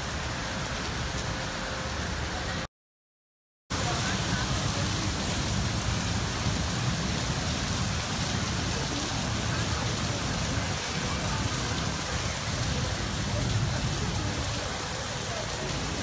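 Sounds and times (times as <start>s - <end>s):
steady rain hiss: 0.0s - 2.7s, 3.7s - 16.0s.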